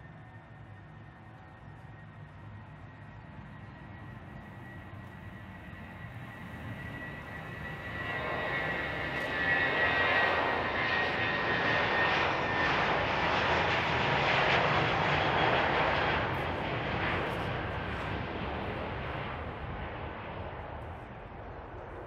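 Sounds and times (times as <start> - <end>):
high engine whine: 0.0 - 13.2
jet engines roaring: 0.0 - 22.0.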